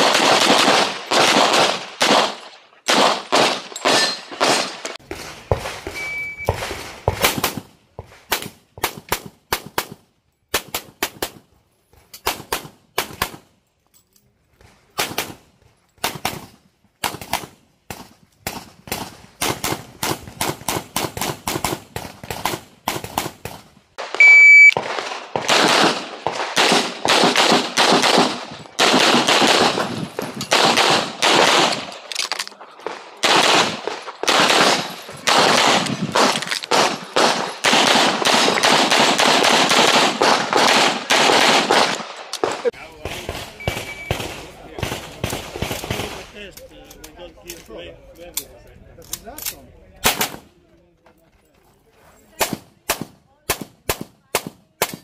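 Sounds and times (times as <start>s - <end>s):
shot timer beep: 6.0s - 6.5s, 24.2s - 24.8s, 43.6s - 44.2s.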